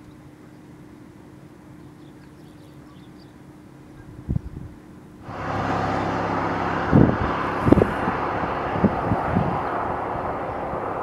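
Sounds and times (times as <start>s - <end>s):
wind rumbling on microphone: 3.9s - 11.0s
low thumps from gusts: 4.2s - 11.0s.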